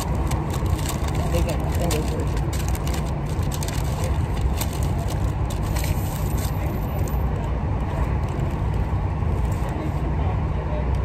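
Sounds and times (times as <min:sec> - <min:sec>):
eating crackles and clicks: 0:00.0 - 0:05.9
paper wrapper crinkling: 0:00.0 - 0:07.2, 0:07.9 - 0:09.8.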